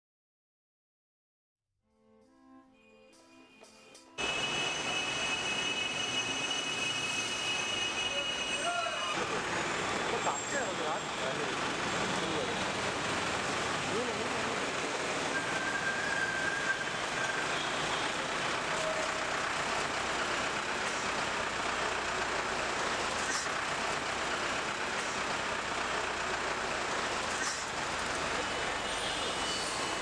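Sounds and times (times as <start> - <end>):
vehicle horn: 4.2 - 9.2, 15.6 - 19.1, 28.8 - 30.0
street traffic noise: 4.2 - 30.0.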